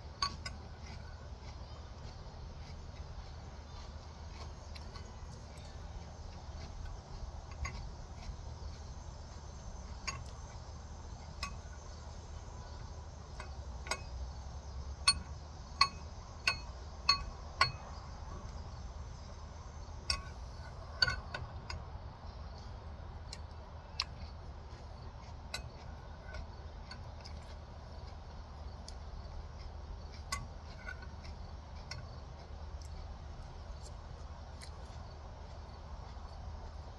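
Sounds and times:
steady low hum: 0.0s - 36.9s.

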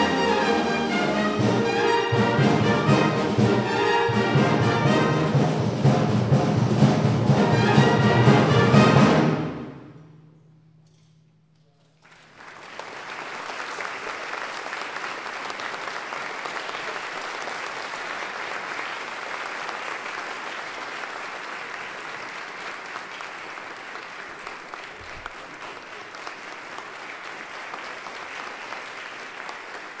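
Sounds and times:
music: 0.0s - 11.0s
audience applause: 12.0s - 30.0s.

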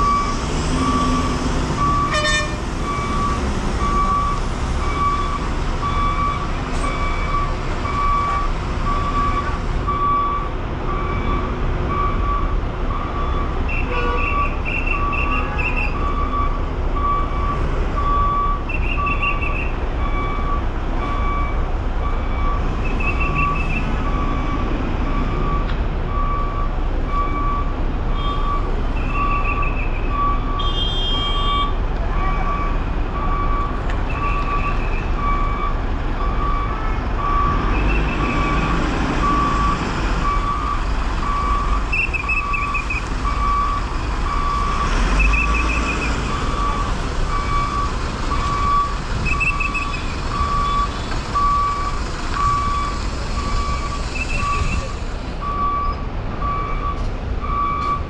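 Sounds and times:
diesel engine rumble: 0.0s - 58.0s
reversing beeper: 14.3s - 58.0s.

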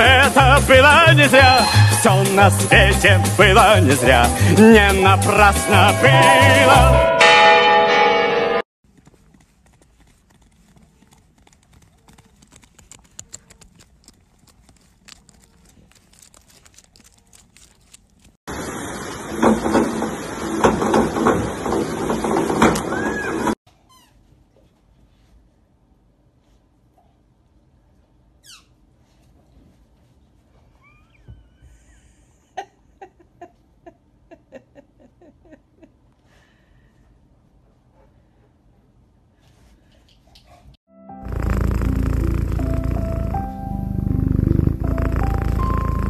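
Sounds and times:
hooves trotting on gravel: 8.8s - 17.7s
person laughing: 31.5s - 36.1s.

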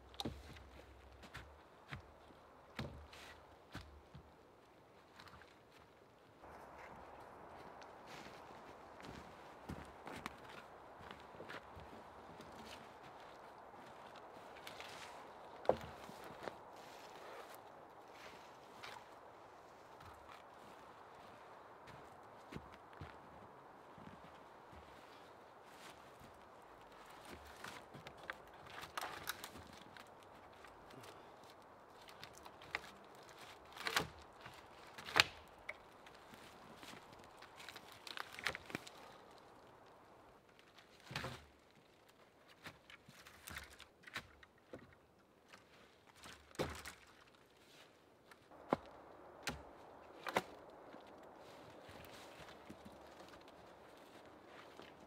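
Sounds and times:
footsteps on leaves: 6.4s - 39.6s, 48.5s - 55.0s.

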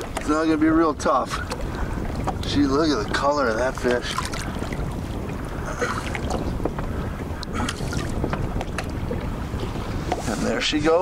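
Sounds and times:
water slapping against boat hull: 0.0s - 11.0s
wind rumbling on microphone: 0.0s - 11.0s.

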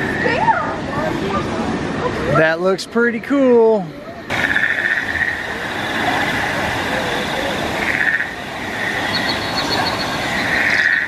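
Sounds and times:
continuous rushing noise: 0.0s - 11.0s
rapid pulsing chirp: 3.9s - 11.0s
high shimmering chirr: 4.2s - 11.0s.

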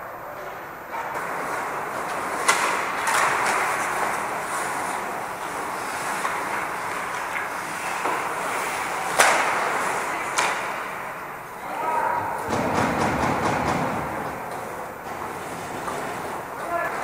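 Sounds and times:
skates scraping on ice: 0.4s - 17.0s
sharp knocks: 12.4s - 16.0s.

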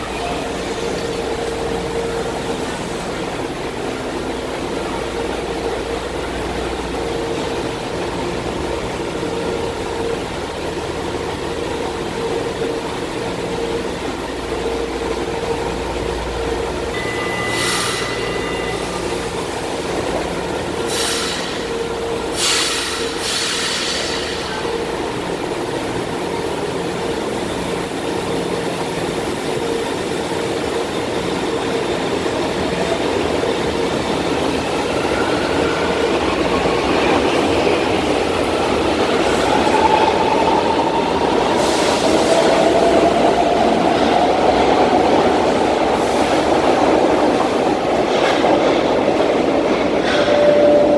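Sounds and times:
train electrical hum: 0.0s - 50.9s
train moving along platform: 0.0s - 50.9s.

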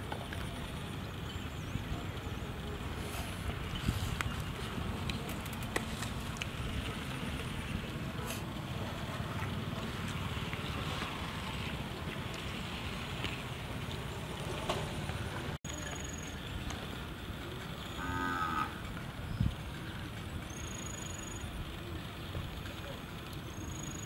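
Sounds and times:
outdoor noise: 0.0s - 24.0s
cattle mooing: 18.0s - 18.8s.

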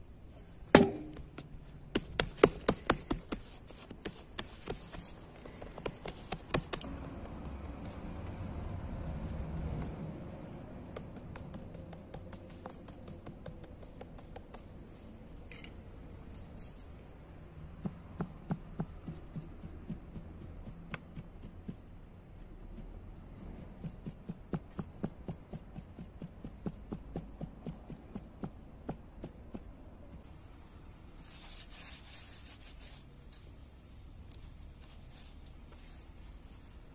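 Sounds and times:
stick tapping bread dough: 0.8s - 14.8s, 17.7s - 30.3s.

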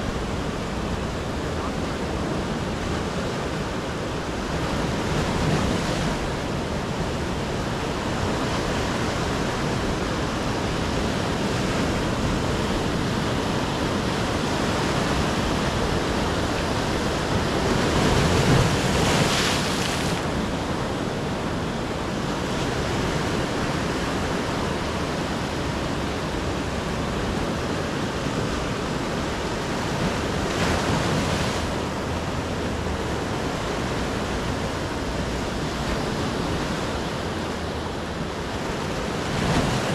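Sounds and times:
ocean surf breaking on shore: 0.0s - 39.9s.

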